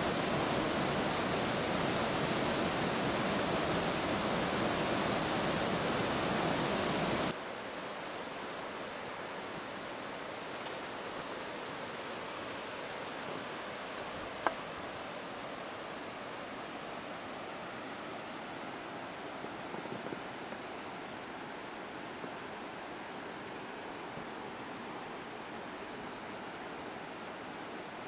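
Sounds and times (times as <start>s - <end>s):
distant cascade rushing: 0.0s - 10.5s
creek rushing: 0.0s - 28.0s.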